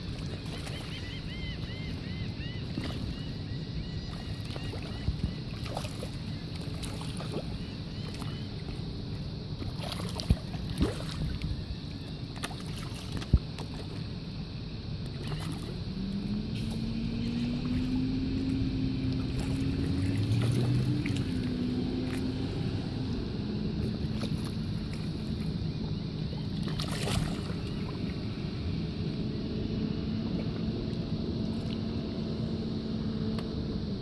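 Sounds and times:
fish splashing: 0.0 - 14.1, 15.1 - 28.7
boat motor running: 0.0 - 14.2, 15.0 - 34.0
water lapping: 0.0 - 32.4.

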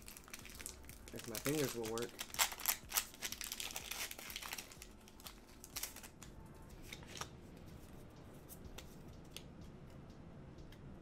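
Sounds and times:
foil wrapper crackling: 0.0 - 6.2.

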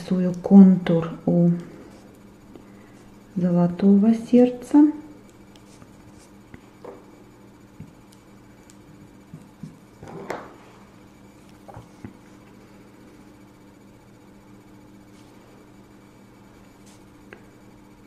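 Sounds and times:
steady low hum: 0.0 - 18.0
paintbrush clicks and scratches: 5.2 - 6.7.

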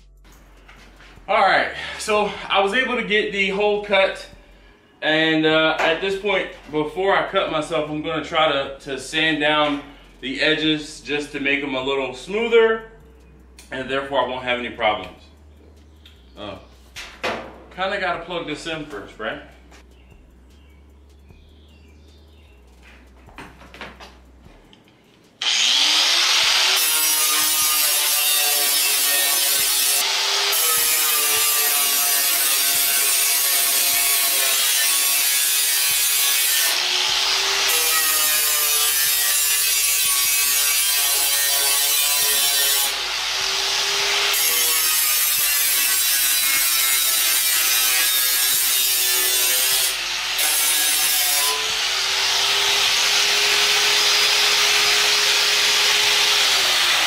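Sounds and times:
angle grinder on metal: 25.4 - 57.0.

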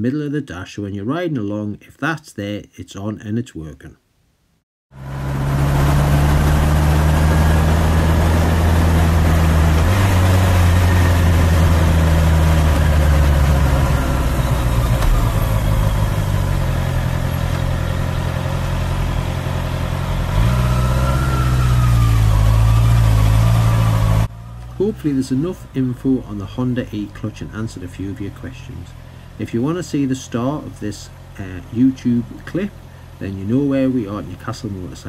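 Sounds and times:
motorcycle engine running: 5.0 - 26.9.

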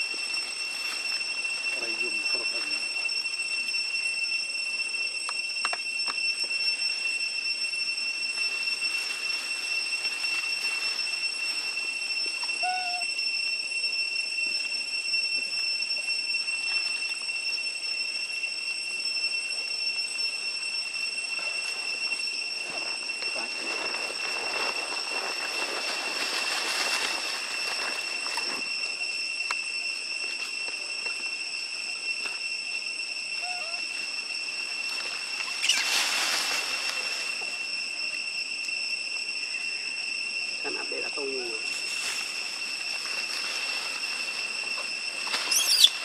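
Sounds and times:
leaves and twigs rustling: 0.0 - 3.2, 8.3 - 13.1, 21.4 - 29.1, 33.4 - 37.7, 40.7 - 46.0
high-pitched insect drone: 0.0 - 46.0.

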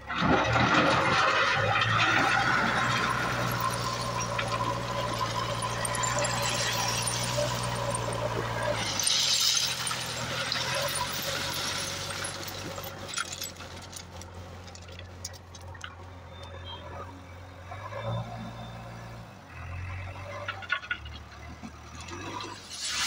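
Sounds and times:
diesel engine running: 0.0 - 23.0
stone pouring and rattling: 0.1 - 16.0, 22.0 - 23.0.

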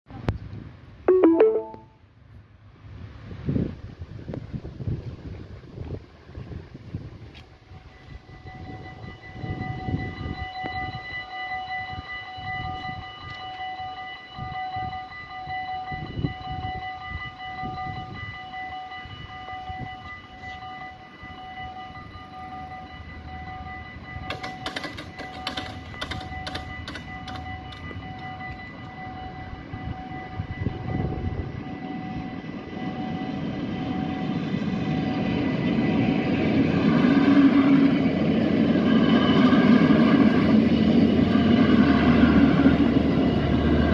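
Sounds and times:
railcar engine and wheel rumble: 0.1 - 43.9
level crossing bells ringing: 1.1 - 1.9, 18.5 - 30.9.

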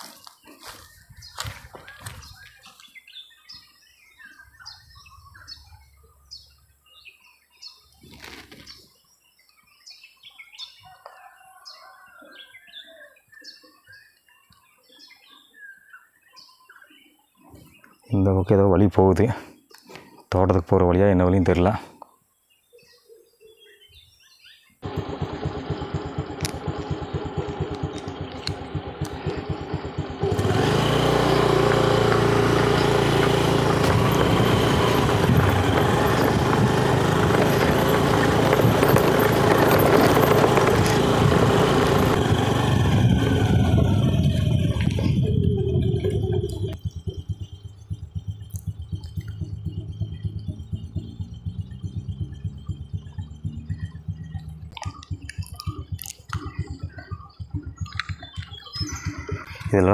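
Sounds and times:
motorcycle engine running: 0.6 - 2.6, 24.8 - 59.9.

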